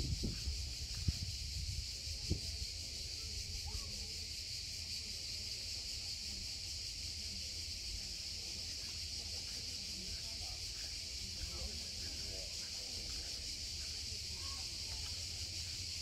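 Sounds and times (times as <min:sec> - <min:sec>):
cicadas singing: 0:00.0 - 0:16.0.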